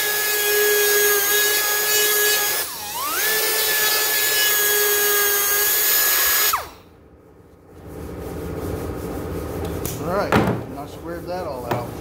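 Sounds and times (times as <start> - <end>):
power grinder whining: 0.0 - 6.8.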